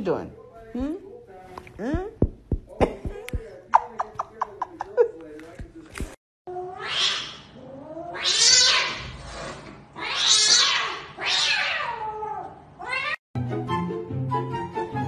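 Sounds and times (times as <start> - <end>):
cat yowling: 6.5 - 9.0, 10.0 - 13.2
music: 13.4 - 15.0.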